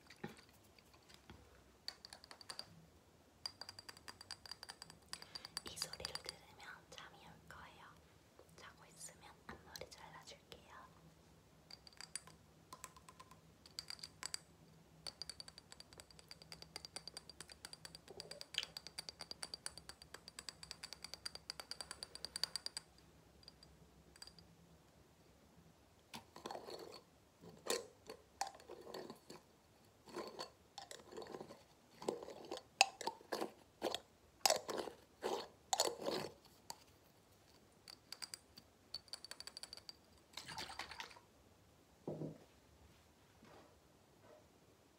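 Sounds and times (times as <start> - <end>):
tapping on glass jar: 3.4 - 6.4, 11.7 - 24.5.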